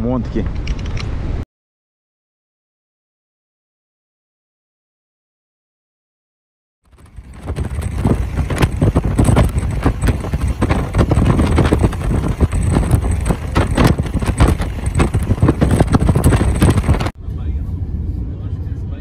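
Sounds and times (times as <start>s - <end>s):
wind buffeting microphone: 6.9s - 17.2s.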